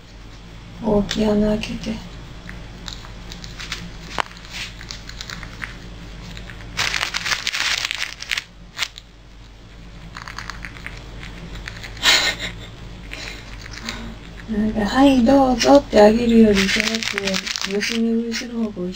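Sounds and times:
squirrel chewing clicks: 2.4s - 6.8s, 10.0s - 12.1s
plastic bag crinkling and tearing: 2.9s - 9.0s, 16.5s - 18.1s.

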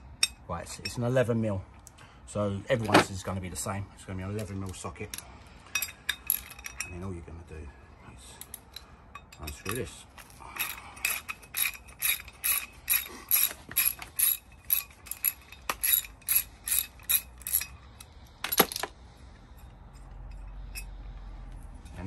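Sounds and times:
socket ratchet clicking: 10.6s - 18.8s.

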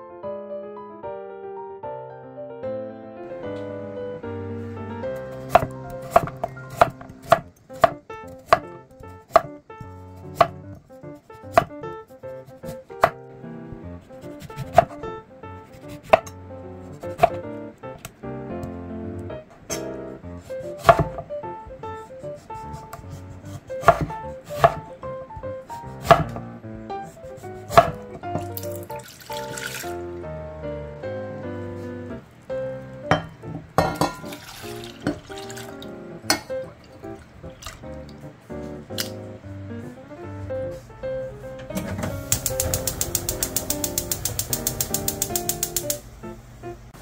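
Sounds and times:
soft piano music: 0.0s - 47.0s
knife chopping on wooden board: 5.4s - 8.7s, 9.3s - 9.5s, 10.3s - 10.6s, 11.5s - 11.8s, 12.6s - 13.2s, 14.2s - 15.0s, 15.8s - 16.4s, 17.0s - 17.4s, 20.8s - 21.2s, 23.8s - 24.9s, 26.0s - 26.4s, 27.6s - 28.2s
knife slicing a lemon: 5.4s - 8.7s, 14.2s - 15.0s, 15.8s - 16.3s, 20.8s - 21.2s, 23.8s - 24.8s, 25.9s - 26.4s, 27.4s - 28.0s.

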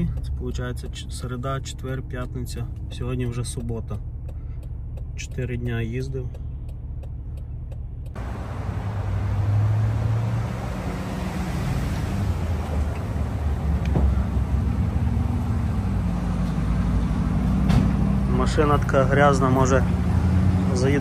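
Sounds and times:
low engine hum: 0.0s - 21.0s
tyre and road noise: 0.0s - 21.0s.

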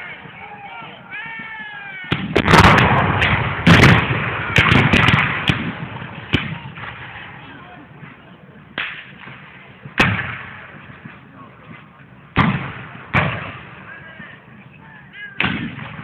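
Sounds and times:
rolling echo of gunshots: 2.1s - 7.2s, 10.0s - 10.8s, 12.4s - 13.8s, 15.4s - 16.0s
black-powder gunshots: 2.1s - 7.3s, 10.0s - 10.8s, 12.3s - 13.9s, 15.4s - 16.0s.

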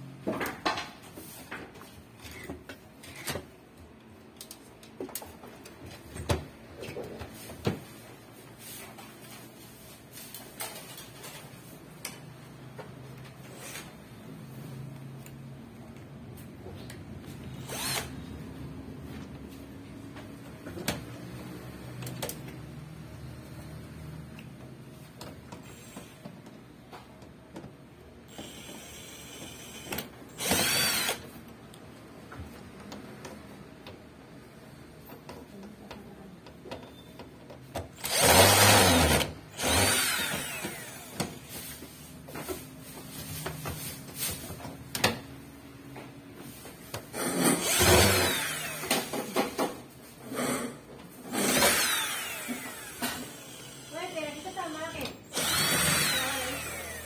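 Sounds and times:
power drill motor whining: 17.6s - 18.1s, 28.3s - 31.2s, 38.0s - 41.4s, 47.6s - 49.1s, 51.4s - 54.6s, 55.2s - 57.0s.

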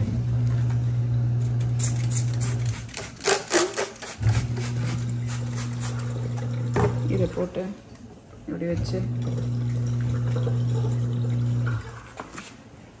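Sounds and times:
dishwasher motor humming: 0.0s - 2.6s, 4.2s - 7.7s, 8.5s - 12.2s
spray bottle squirts: 1.8s - 6.1s.

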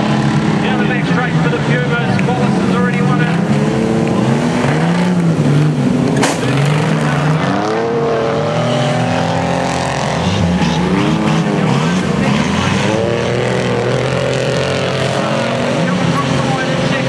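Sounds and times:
race car engines: 0.0s - 17.0s
sharp crack: 6.1s - 7.0s.

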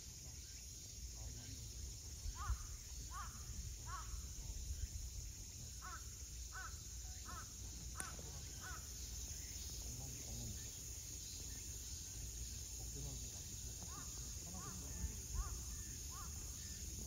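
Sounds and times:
bird calling: 5.8s - 12.1s, 13.3s - 17.0s.

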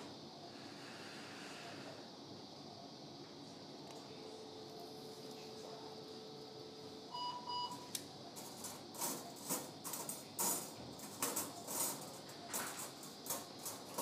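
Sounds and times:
electronic beep: 7.1s - 7.9s.

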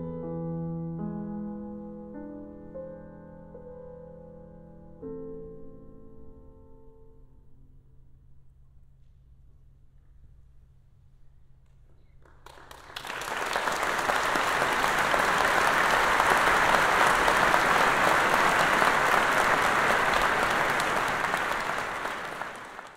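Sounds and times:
audience applauding: 12.2s - 22.9s.

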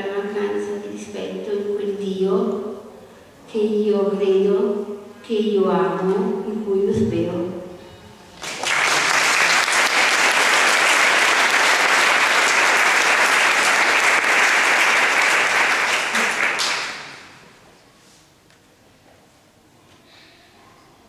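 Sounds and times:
audience applauding: 8.4s - 17.4s.

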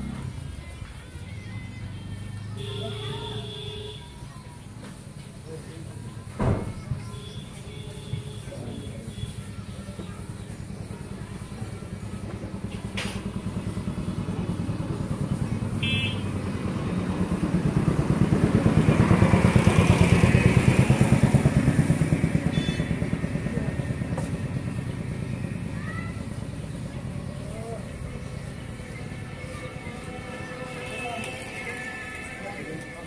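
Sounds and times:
motor vehicle engine passing: 9.0s - 33.0s.

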